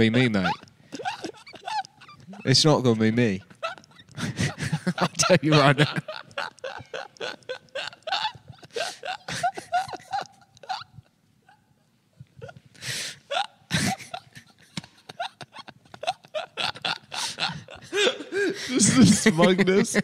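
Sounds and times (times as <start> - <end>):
men laughing: 0.0 - 11.7, 13.3 - 20.0
loud gasping breaths: 8.2 - 9.8, 12.4 - 14.0, 17.1 - 18.9.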